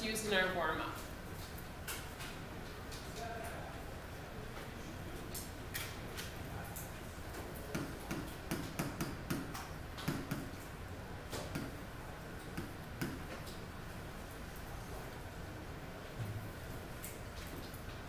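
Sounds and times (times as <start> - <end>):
low room hum: 0.0 - 18.0
stylus tapping on glass screen: 7.7 - 10.5, 11.4 - 11.7, 12.5 - 13.3.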